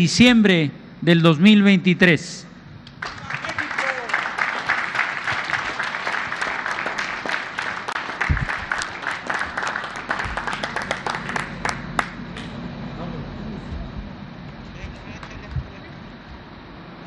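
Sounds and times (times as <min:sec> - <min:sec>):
crowd applauding: 0:02.9 - 0:12.5.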